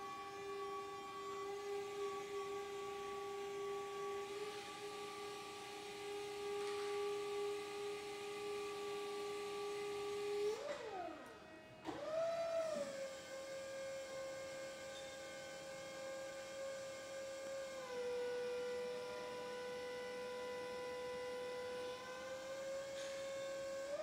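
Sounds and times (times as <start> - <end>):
hydraulic pump motor whining: 0.0 - 24.0.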